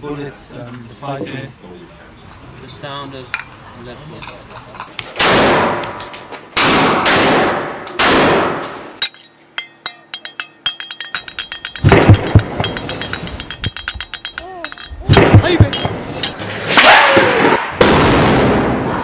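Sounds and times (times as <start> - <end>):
explosion blasts: 16.5 - 19.0.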